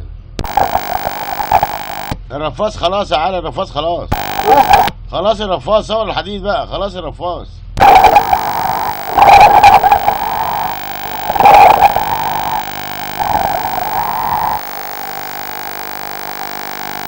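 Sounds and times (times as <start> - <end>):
electrical hum: 0.0 - 2.2, 4.1 - 4.9, 7.8 - 17.0.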